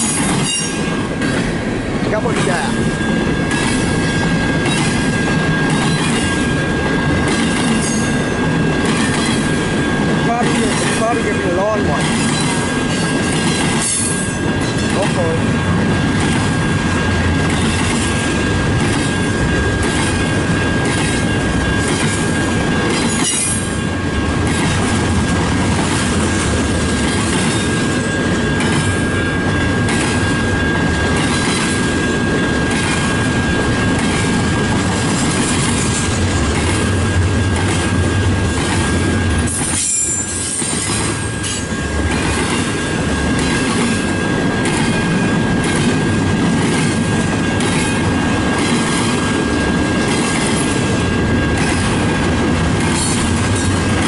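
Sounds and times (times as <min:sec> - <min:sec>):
train wheels clicking over rail joints: 0:00.0 - 0:54.0
high-pitched wheel squeal: 0:39.5 - 0:41.6.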